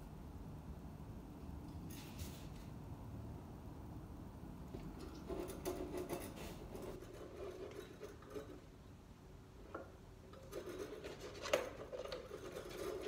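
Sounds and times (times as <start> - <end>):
metal tool scraping paper: 10.5 - 13.0.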